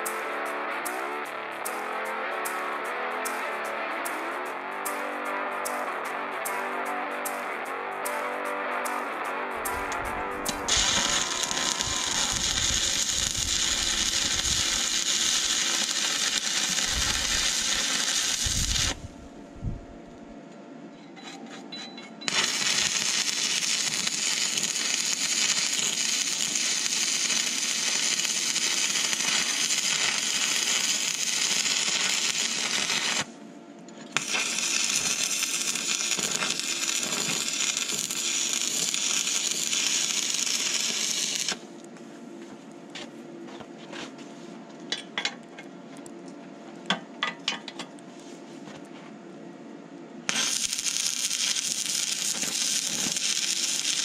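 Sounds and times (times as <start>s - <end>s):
welding arc crackling: 8.9s - 19.2s, 22.3s - 33.3s, 34.2s - 41.6s, 50.3s - 54.0s.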